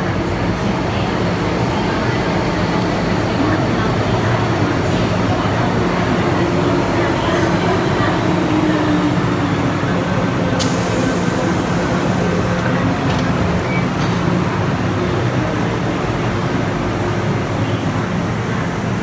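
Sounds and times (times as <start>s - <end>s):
train equipment humming: 10.5s - 12.8s
air hiss: 10.6s - 12.6s.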